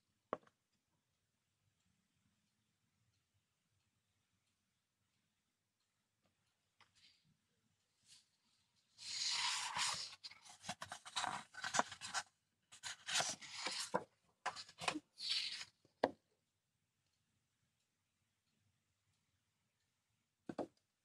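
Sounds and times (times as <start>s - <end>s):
paper rustling and sliding: 9.0s - 15.7s.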